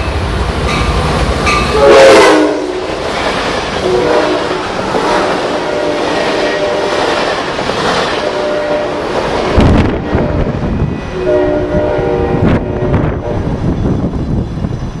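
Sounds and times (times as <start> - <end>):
train wheels rolling on rails: 0.0 - 15.0
distant train horn: 0.7 - 3.0, 3.8 - 7.4, 8.1 - 13.6.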